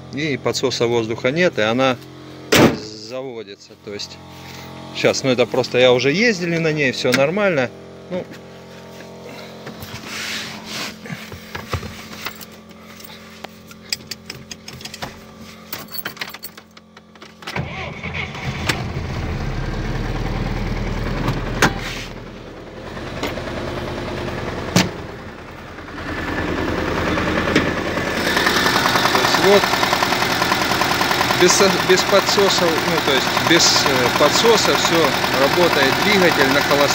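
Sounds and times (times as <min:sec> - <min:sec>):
sharp knock: 0:02.5 - 0:02.8
car engine cranking and idling: 0:04.0 - 0:36.9.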